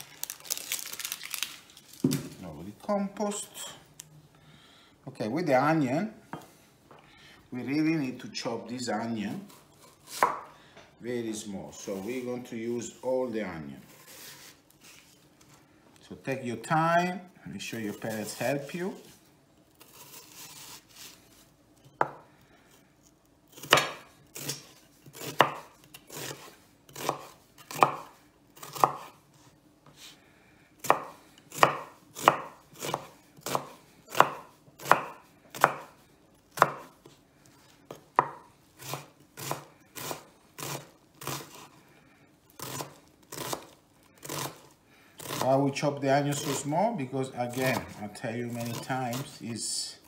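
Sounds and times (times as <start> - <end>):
knife chopping onion on wooden board: 10.0 - 10.5, 23.6 - 29.2, 30.8 - 37.1, 37.9 - 41.7, 42.6 - 44.6.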